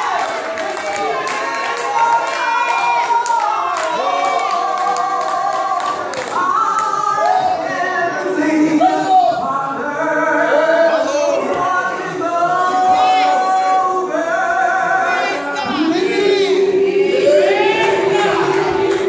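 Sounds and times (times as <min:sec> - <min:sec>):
woman singing a hymn: 0:04.4 - 0:16.2.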